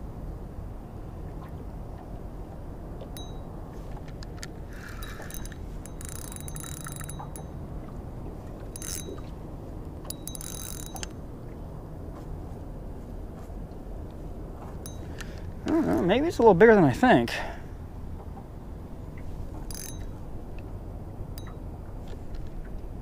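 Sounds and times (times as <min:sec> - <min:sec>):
low steady rumble: 0:00.0 - 0:23.0
fishing reel buzzing: 0:04.7 - 0:07.5, 0:08.8 - 0:09.3, 0:10.1 - 0:11.2, 0:19.7 - 0:20.3.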